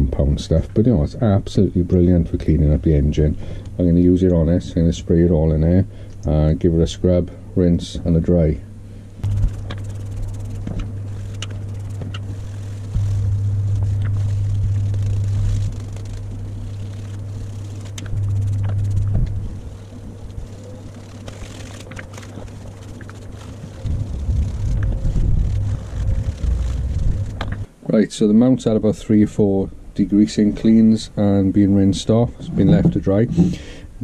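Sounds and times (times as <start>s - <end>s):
low rumble: 8.7s - 27.7s
degreaser spraying: 9.2s - 27.7s.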